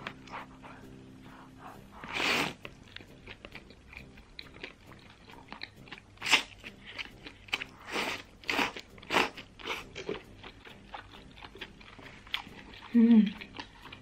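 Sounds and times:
chewing: 0.0 - 14.0
slurping broth: 1.7 - 2.8, 7.6 - 9.9.

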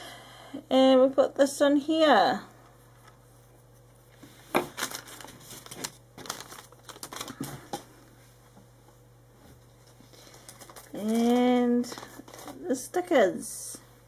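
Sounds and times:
crinkly packaging rustling: 3.1 - 7.9, 9.6 - 12.8.

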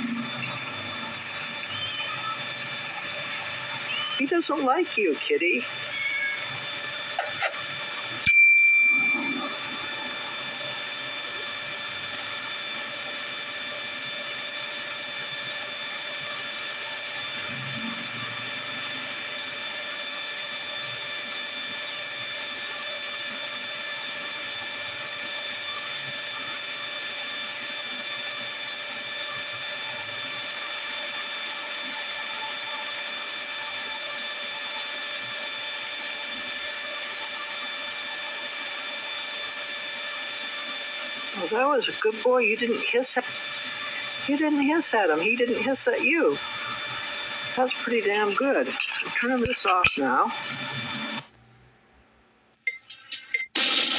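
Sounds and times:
high whining tones: 0.0 - 14.1
notification bell chime: 8.3 - 9.6.

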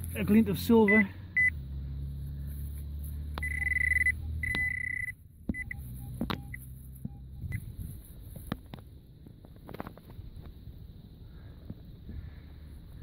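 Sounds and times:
metal detector beeping: 0.7 - 1.6, 3.4 - 7.8.

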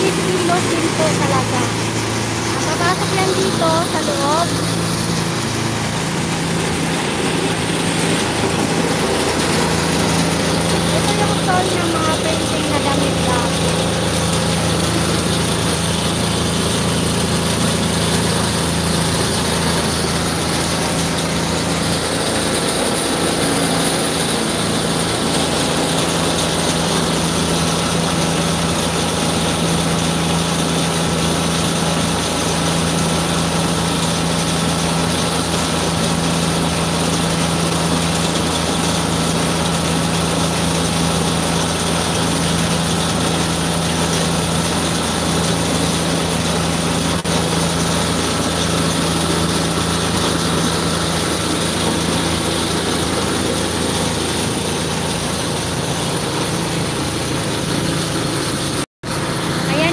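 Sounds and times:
truck engine idling: 0.0 - 28.9
hose spraying water: 0.0 - 59.9.

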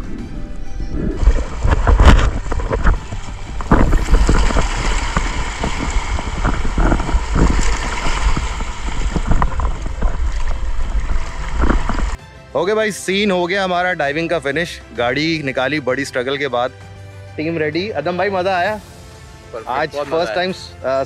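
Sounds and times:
wind buffeting microphone: 0.0 - 12.2
water splashing over rocks: 1.1 - 12.2.

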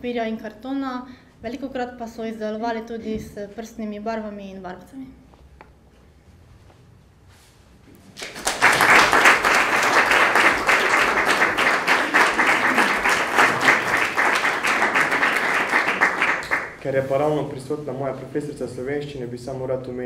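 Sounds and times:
audience clapping: 8.0 - 17.1.

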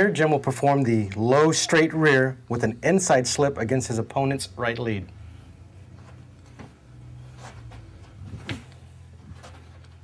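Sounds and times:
steady low hum: 0.2 - 10.0
thumps and brushing of footwork: 5.9 - 10.0.

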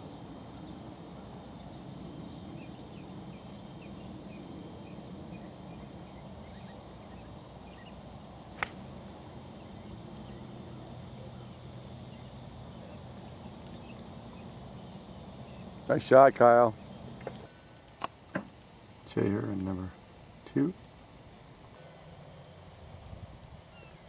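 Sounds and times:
golf club striking ball: 8.6 - 8.9.

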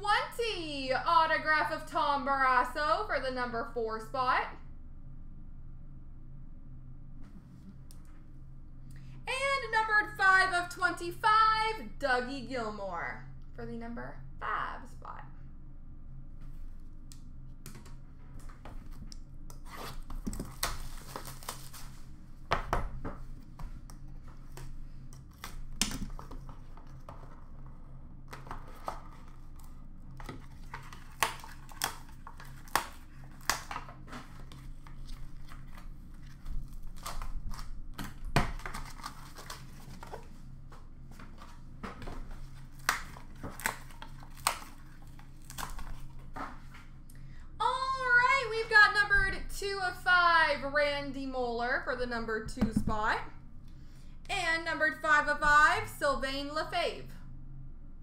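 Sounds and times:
plastic crinkling: 19.9 - 22.2, 28.3 - 46.4.

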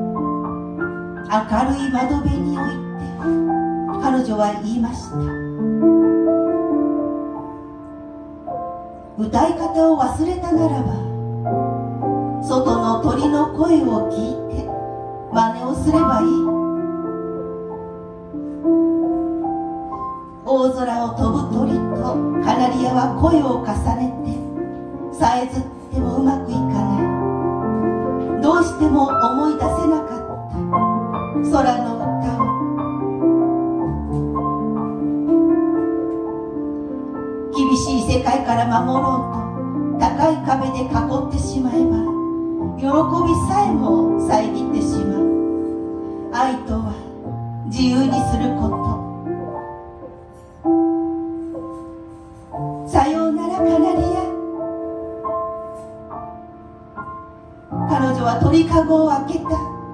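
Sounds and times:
grand piano chords: 0.0 - 59.9
woman's voice: 1.3 - 2.9, 4.0 - 5.2, 9.2 - 11.1, 12.4 - 14.7, 15.3 - 16.6, 20.4 - 24.5, 25.1 - 27.2, 28.4 - 30.6, 31.4 - 32.5, 37.6 - 39.4, 40.0 - 42.2, 42.8 - 45.4, 46.4 - 47.1, 47.7 - 49.1, 52.9 - 54.5, 57.8 - 59.8.

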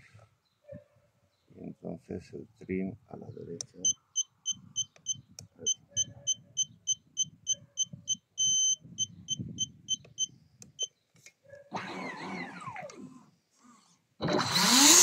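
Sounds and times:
transmitter short beeps: 3.8 - 10.9
long beep tone: 8.1 - 10.3.

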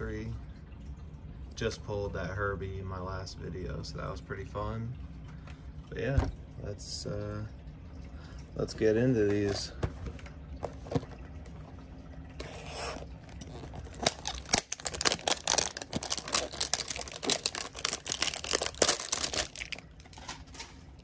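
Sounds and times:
plastic wrap crinkling: 12.4 - 20.8.

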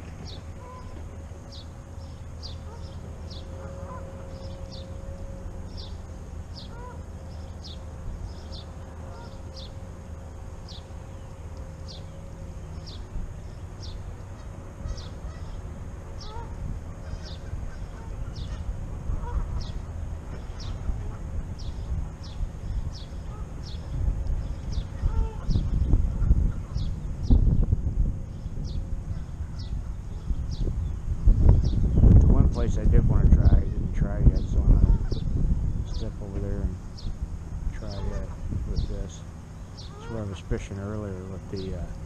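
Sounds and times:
low rumble: 0.0 - 40.0
geese honking: 0.3 - 1.1, 2.4 - 7.1, 8.8 - 9.8, 13.8 - 15.6, 16.2 - 21.8, 23.2 - 23.8, 24.8 - 27.0, 37.8 - 38.9, 39.8 - 40.6.

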